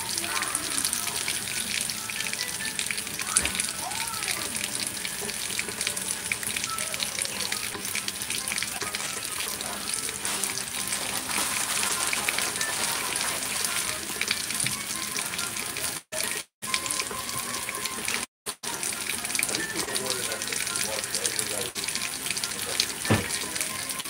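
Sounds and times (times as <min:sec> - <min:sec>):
food sizzling in frying pans: 0:00.0 - 0:20.0.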